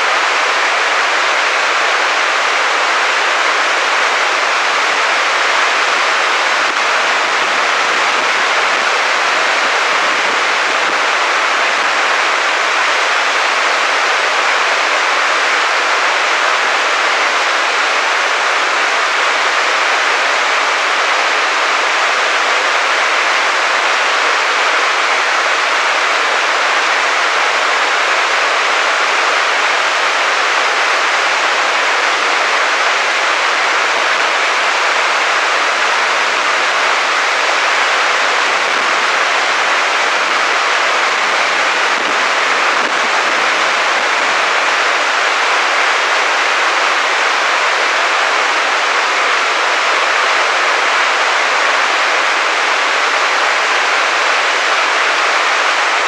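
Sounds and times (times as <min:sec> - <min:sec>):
waterfall rushing over rocks: 0:00.0 - 0:56.0.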